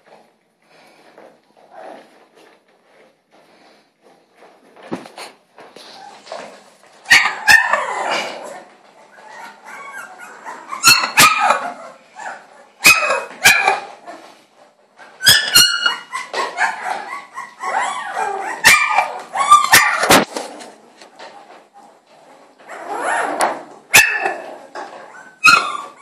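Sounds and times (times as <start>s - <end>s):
puppy whining: 5.8s - 14.4s, 15.0s - 20.8s, 22.6s - 26.0s
puppy yapping: 7.1s - 14.2s, 15.2s - 20.3s, 22.7s - 26.0s.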